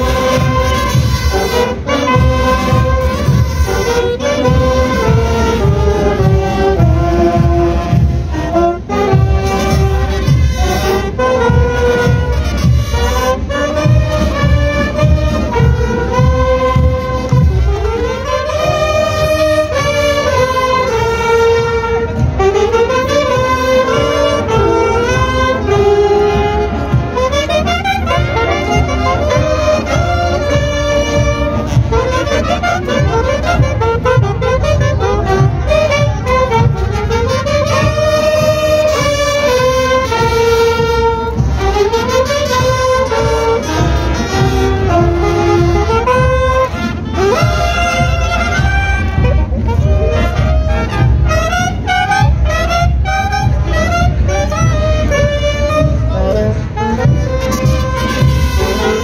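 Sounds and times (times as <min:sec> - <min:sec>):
marching band playing: 0:00.0 - 0:59.0
saxophones playing melody: 0:00.0 - 0:59.0
steady drum beat: 0:00.0 - 0:59.0.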